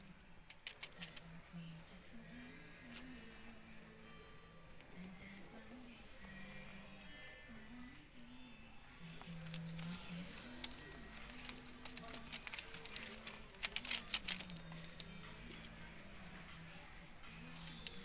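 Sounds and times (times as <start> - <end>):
soft background melody: 0.0 - 18.0
plastic film crinkling: 9.2 - 15.6.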